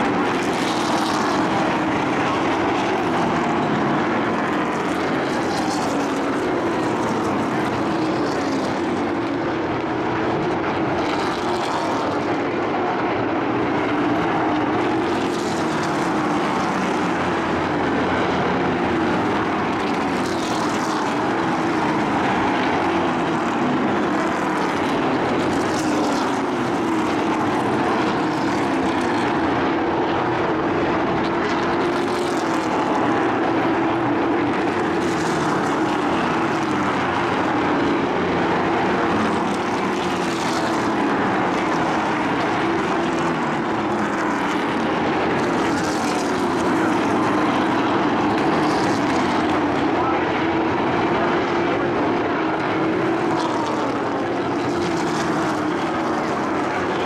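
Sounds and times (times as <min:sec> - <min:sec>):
race truck engines droning: 0:00.0 - 0:57.0.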